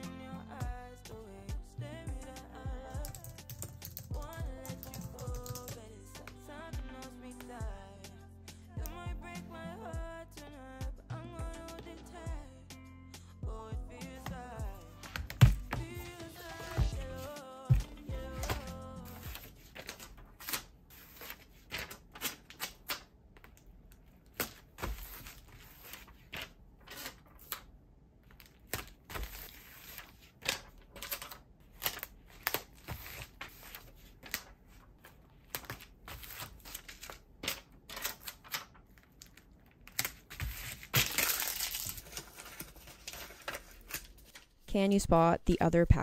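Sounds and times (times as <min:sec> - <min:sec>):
soft foil crinkling: 0:15.2 - 0:44.5
packaging rustle: 0:35.6 - 0:44.5.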